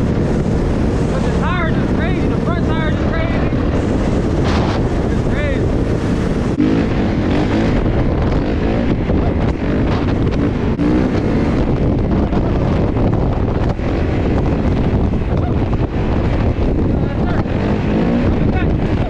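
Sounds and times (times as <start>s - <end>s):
dirt bike engine: 0.0s - 19.0s
wind buffeting microphone: 0.0s - 19.0s.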